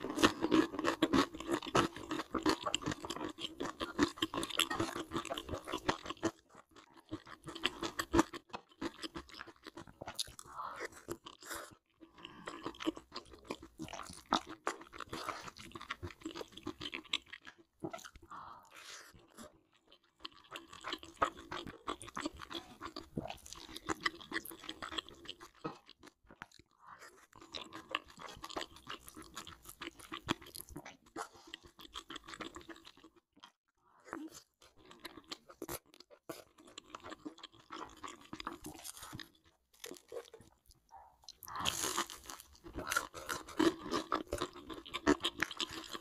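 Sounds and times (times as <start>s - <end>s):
person chewing and crunching food: 0.0s - 46.0s.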